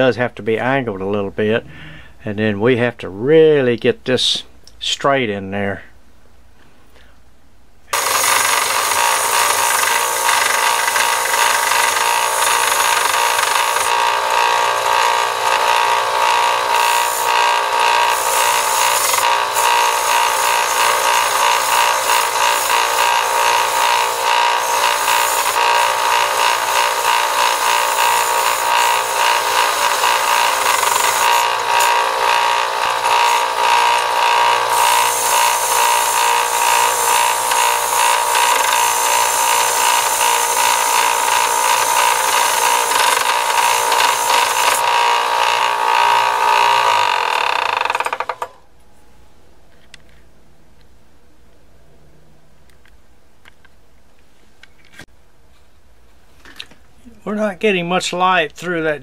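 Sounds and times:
belt sander grinding metal: 7.9s - 48.6s.

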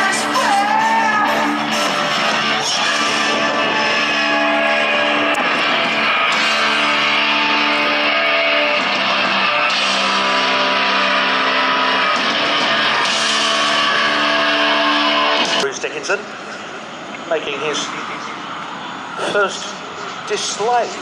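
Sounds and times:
rock music with electric guitar: 0.0s - 21.0s.

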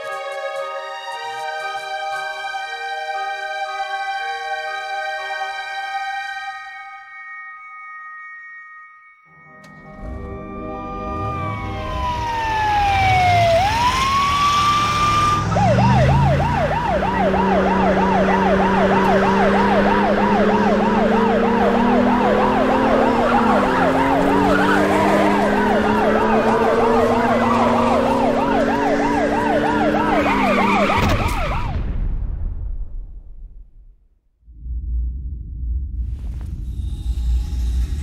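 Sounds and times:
lower sliding siren tones: 9.6s - 31.8s
siren wailing: 9.6s - 31.8s
siren fast yelp: 10.9s - 31.8s.

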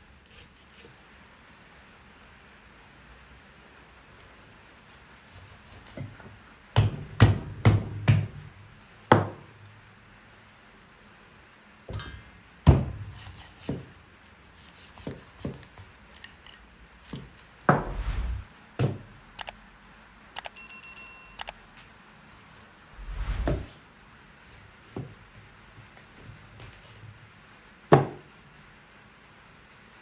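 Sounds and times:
high rings: 20.4s - 21.6s.

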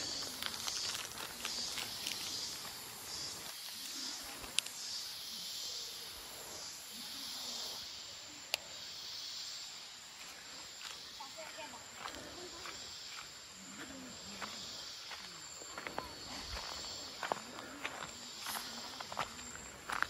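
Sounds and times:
footsteps on leaf litter: 0.0s - 3.6s
insects buzzing chorus: 0.0s - 20.0s.

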